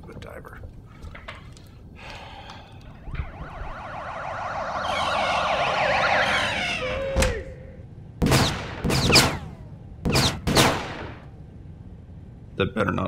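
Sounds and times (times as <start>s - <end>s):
police sirens: 2.0s - 7.9s.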